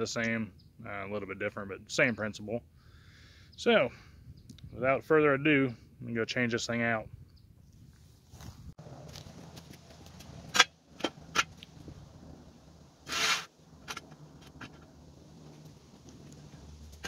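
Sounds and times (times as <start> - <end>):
scraping rustle: 8.3 - 17.0.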